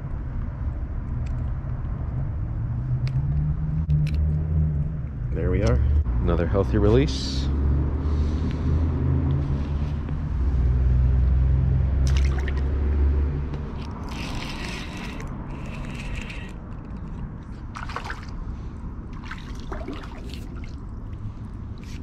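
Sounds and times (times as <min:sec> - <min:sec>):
water splashing and trickling: 0:11.9 - 0:22.0
fish splashing at surface: 0:12.0 - 0:12.7, 0:17.8 - 0:18.4, 0:19.2 - 0:21.2.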